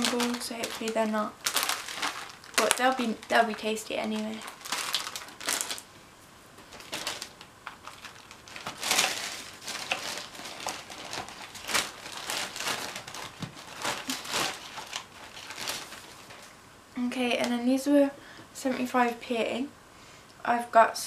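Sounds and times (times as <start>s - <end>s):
packaging crinkling and rustling: 0.0s - 5.9s, 6.6s - 16.6s.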